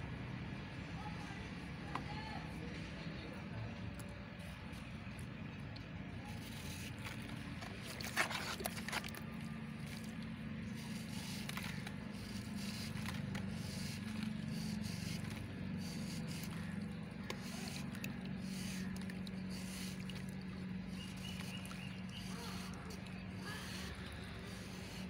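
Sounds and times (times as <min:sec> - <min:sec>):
steady low hum: 0:00.0 - 0:25.0
knife scraping cement block: 0:07.9 - 0:09.2.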